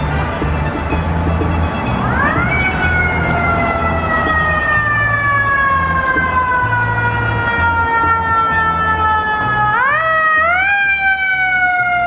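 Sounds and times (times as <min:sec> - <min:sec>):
fire engine siren wailing: 0:00.0 - 0:12.0.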